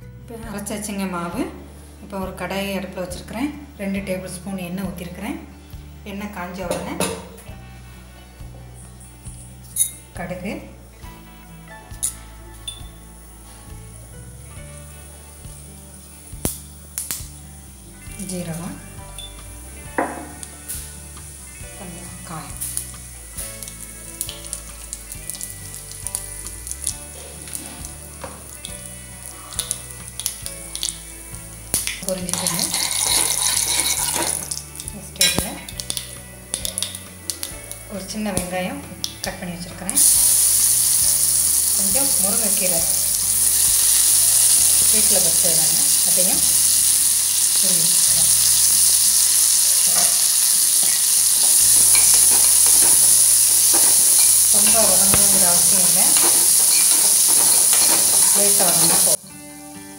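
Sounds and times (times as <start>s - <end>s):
seeds sizzling in hot oil: 10.8s - 39.2s, 39.9s - 59.2s
seeds popping: 31.8s - 37.9s, 40.0s - 59.2s.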